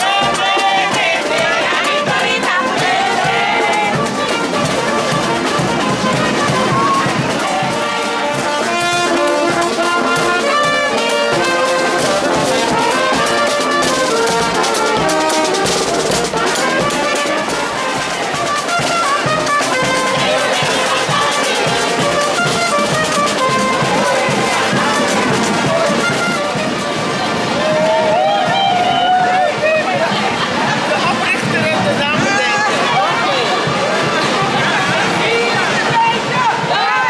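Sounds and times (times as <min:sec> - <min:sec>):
saxophone: 0:00.0 - 0:29.5
bass drum beat: 0:00.0 - 0:36.8
trumpets: 0:00.0 - 0:37.0.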